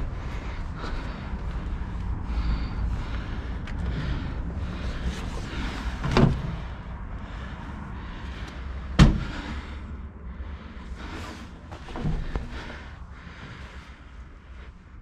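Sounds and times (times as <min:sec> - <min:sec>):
low rumble: 0:00.0 - 0:15.0.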